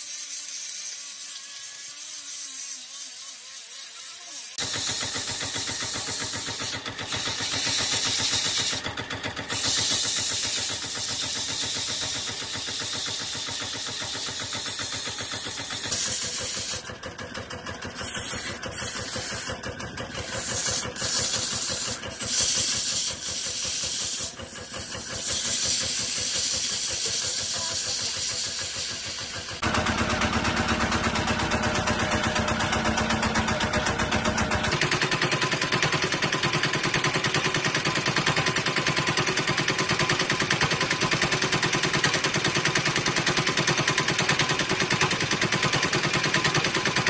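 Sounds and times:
sandpaper hissing on wood: 0.0 - 16.9, 17.9 - 29.6
wood lathe running: 0.0 - 47.0.

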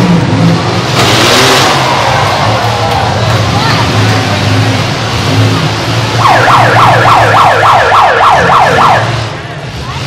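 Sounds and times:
car engines running: 0.0 - 10.0
siren sweeping: 6.2 - 9.4.

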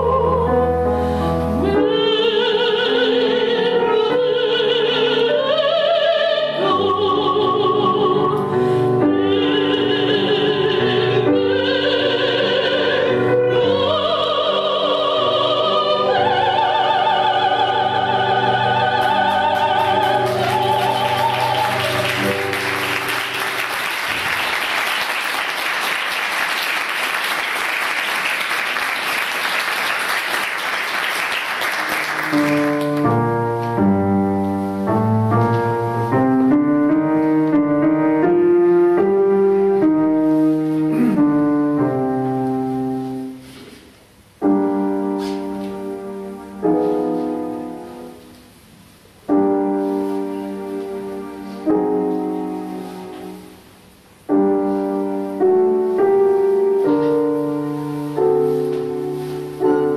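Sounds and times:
classical vocal trio singing: 0.0 - 22.9
piano accompaniment: 0.0 - 59.9
digital piano playing: 16.2 - 24.6, 32.0 - 43.6, 44.4 - 59.9
audience applause: 19.6 - 33.1.

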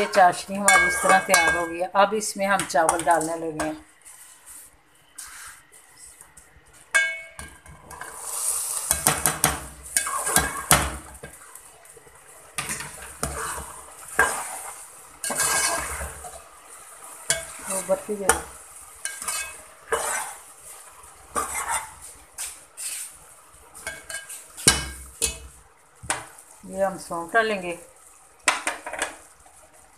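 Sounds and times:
metal spoon scraping a pot: 0.0 - 1.8, 9.9 - 10.8, 12.6 - 16.4, 17.3 - 20.5, 21.3 - 22.1
light sizzle: 0.0 - 29.9.

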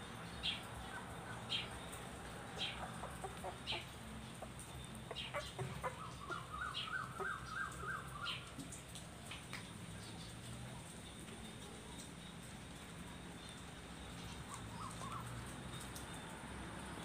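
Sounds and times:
animal chirping: 4.7 - 8.1.

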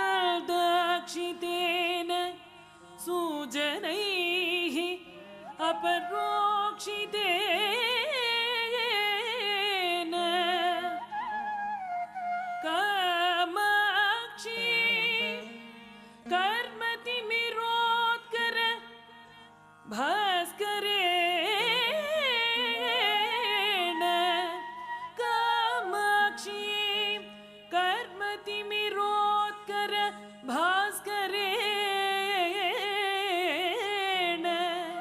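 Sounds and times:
person singing ornamented melody: 3.0 - 11.2, 11.8 - 15.6, 19.9 - 35.0.

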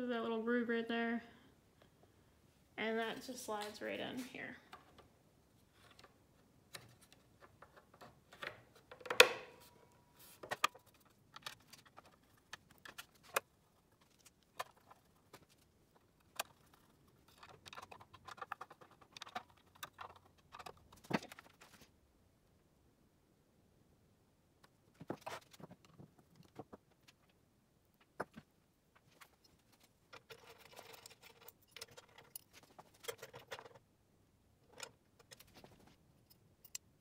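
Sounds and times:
metal parts and tools clinking: 29.3 - 33.8.

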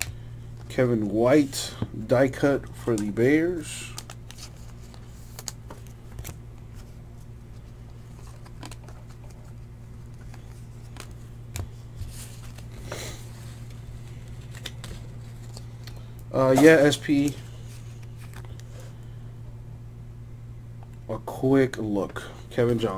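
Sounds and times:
steady low hum: 0.0 - 22.9
cards clicking and tapping: 10.0 - 13.0.

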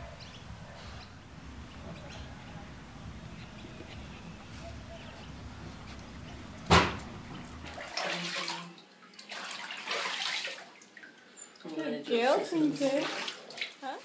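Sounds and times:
outdoor background noise: 0.0 - 14.0
bath water splashing and sloshing: 5.7 - 14.0
sharp loud knock: 6.7 - 7.0.

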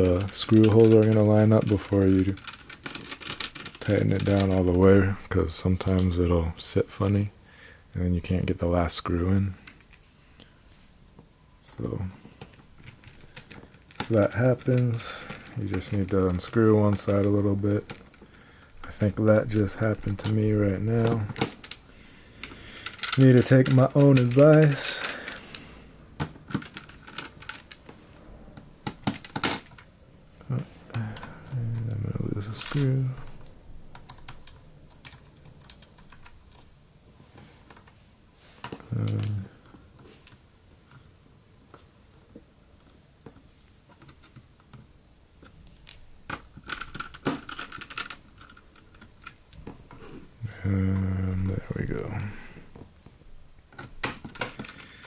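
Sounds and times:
person humming: 50.4 - 51.5.

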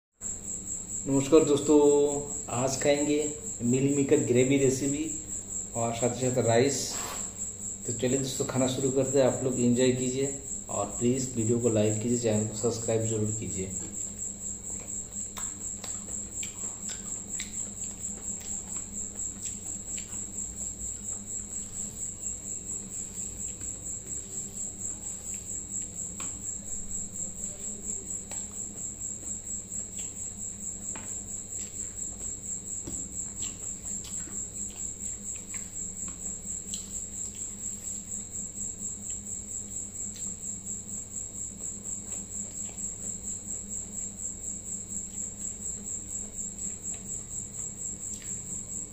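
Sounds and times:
cricket chirping: 0.2 - 48.9
eating by hand clicks: 14.8 - 20.4, 33.4 - 37.6.

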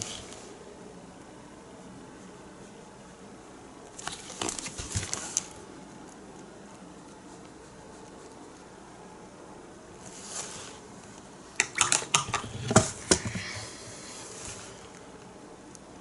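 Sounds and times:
soft brushing: 5.1 - 8.8, 9.9 - 11.2.

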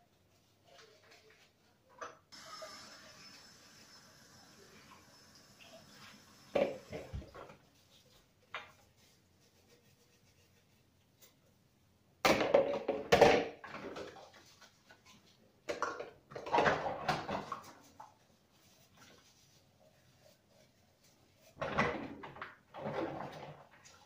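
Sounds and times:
dishes clattering in a sink: 6.5 - 7.5, 15.7 - 17.7, 21.6 - 23.9.

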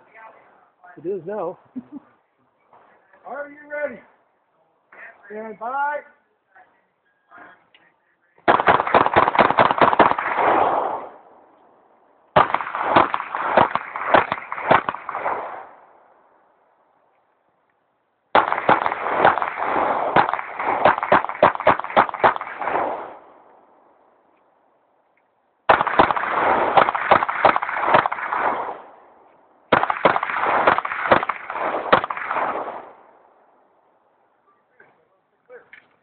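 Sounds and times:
rapid pistol fire: 8.5 - 11.2, 12.4 - 15.7, 18.3 - 23.2, 25.7 - 28.9, 29.7 - 33.0.

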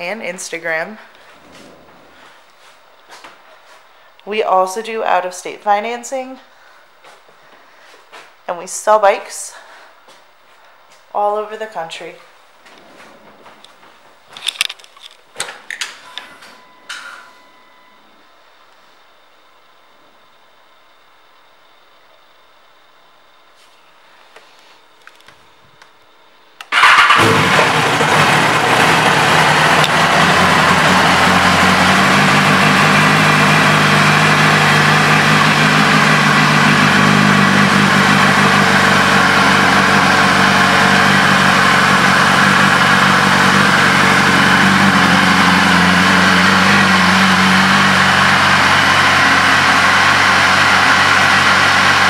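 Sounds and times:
motorcycle engine starting and idling: 26.6 - 52.0.

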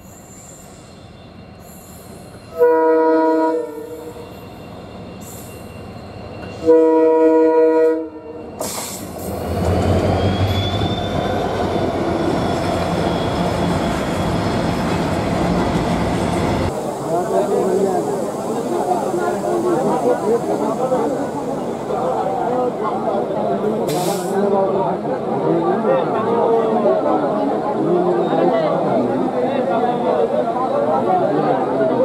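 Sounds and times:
locomotive horn blasts: 2.5 - 4.2, 6.6 - 8.4
train wheels rumbling on rails: 8.6 - 24.5.

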